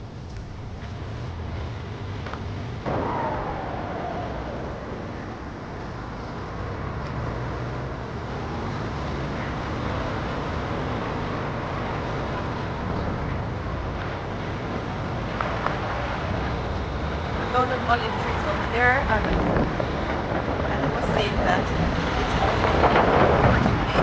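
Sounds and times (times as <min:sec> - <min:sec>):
car engine and road noise: 0:00.0 - 0:24.0
whine falling in pitch: 0:02.8 - 0:08.7.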